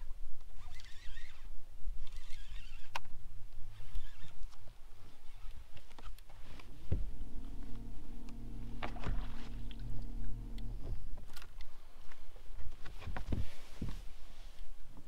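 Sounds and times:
electric motor humming: 6.9s - 11.4s.

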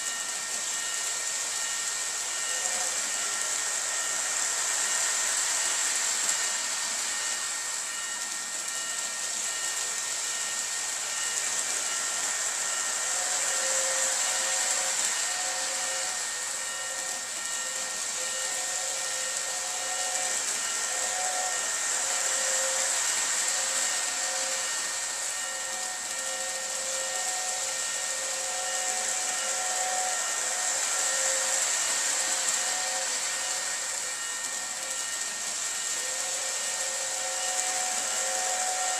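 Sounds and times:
thin motor whine: 0.0s - 38.9s
toy train hissing: 0.0s - 38.9s.

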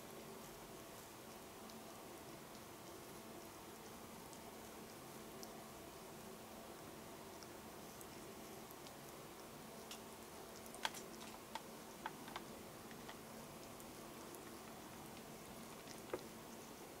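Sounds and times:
low steady hum: 0.0s - 17.0s
cat tongue licking clicks: 7.3s - 16.6s.

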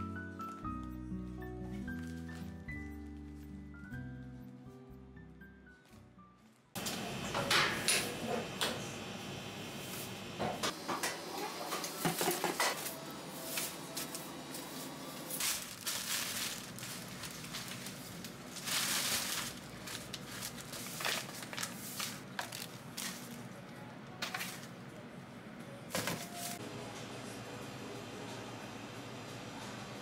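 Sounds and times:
plastic bag rustling and crinkling: 0.0s - 4.8s, 11.9s - 24.8s, 25.9s - 26.6s
faint background music: 21.8s - 30.0s.

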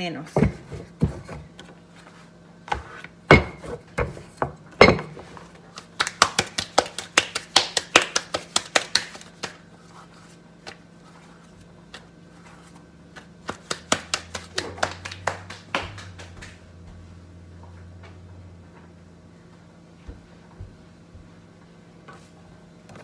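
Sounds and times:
rolling pin knocking on stone: 2.7s - 5.3s
hands tapping and patting dough: 2.7s - 9.7s, 13.1s - 16.6s.

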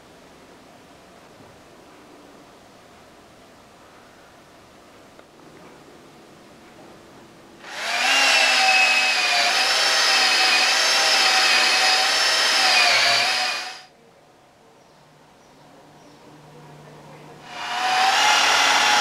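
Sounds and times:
drill motor whine: 7.6s - 13.9s, 17.4s - 19.0s.

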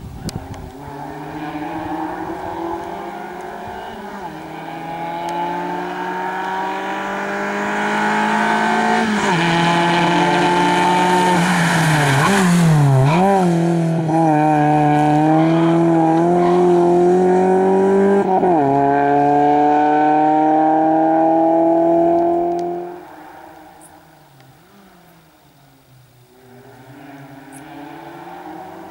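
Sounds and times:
tire noise: 0.0s - 28.9s
car engine revving hard: 0.8s - 23.1s.

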